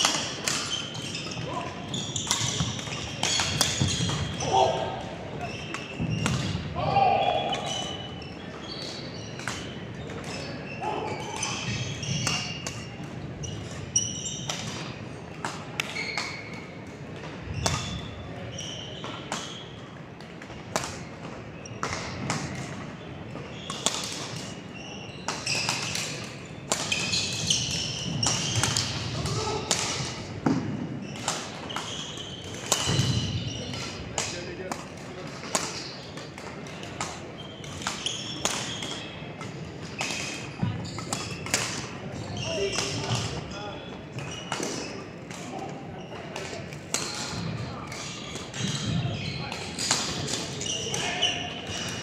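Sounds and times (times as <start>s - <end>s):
shoes squeaking on gym floor: 0.0s - 15.1s, 15.7s - 20.0s, 20.9s - 52.0s
racket striking shuttlecock: 2.2s - 4.6s
murmur of voices: 4.0s - 13.8s, 32.6s - 52.0s.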